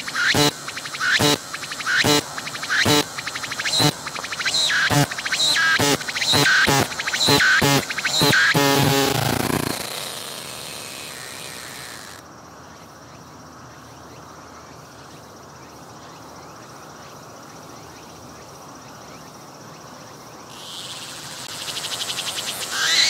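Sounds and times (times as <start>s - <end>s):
cicada buzzing: 0.0s - 12.3s, 20.5s - 23.0s.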